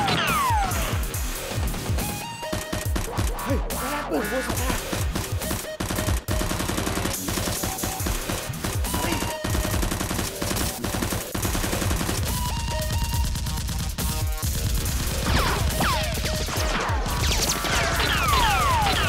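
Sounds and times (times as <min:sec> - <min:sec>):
background music: 0:00.0 - 0:19.0
rapid gunfire: 0:00.0 - 0:19.0.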